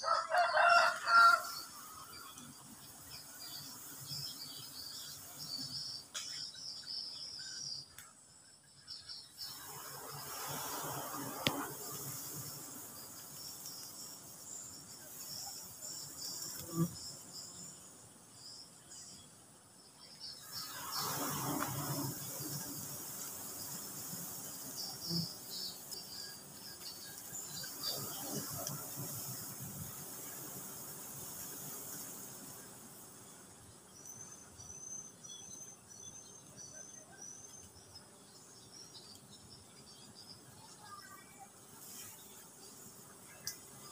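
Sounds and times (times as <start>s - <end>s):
faint steady high hiss: 0.0s - 43.9s
insects buzzing and chirping: 0.0s - 43.9s.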